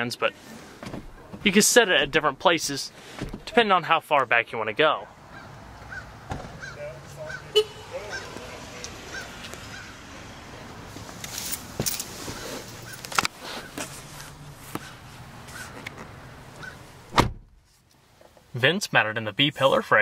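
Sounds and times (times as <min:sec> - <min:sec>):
knocks and rustling: 0:00.8 - 0:02.2, 0:11.0 - 0:17.6.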